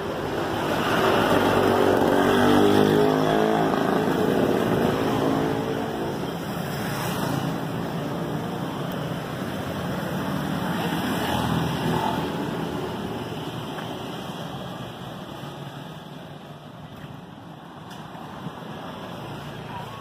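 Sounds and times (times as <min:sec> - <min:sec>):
vehicle passing by: 0:00.6 - 0:07.8.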